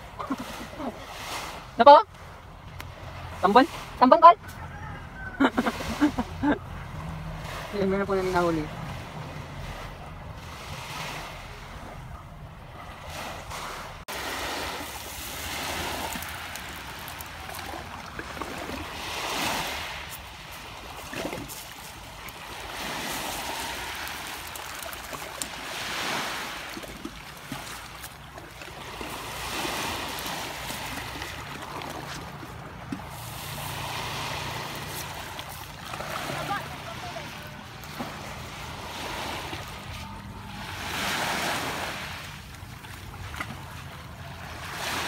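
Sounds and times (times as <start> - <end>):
waves washing on pebble beach: 13.0 - 45.0.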